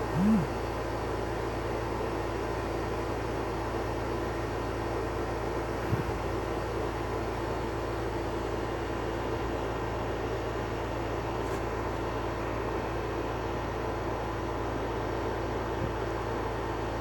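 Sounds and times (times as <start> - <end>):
droning low hum: 0.0 - 0.6.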